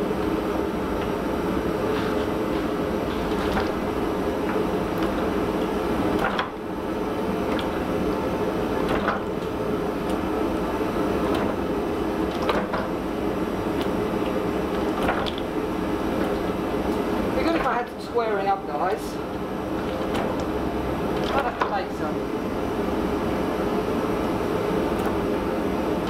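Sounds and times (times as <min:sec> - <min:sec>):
forging press drone: 0:00.0 - 0:26.0.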